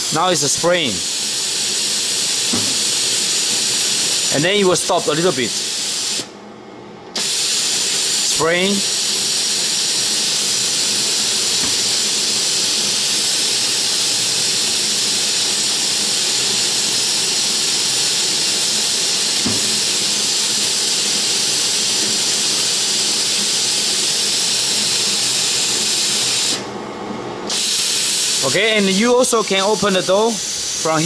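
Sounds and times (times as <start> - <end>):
spray gun hissing: 0.0 - 6.3, 7.2 - 26.6, 27.5 - 28.8
soft knock: 2.5 - 2.8, 19.4 - 19.8.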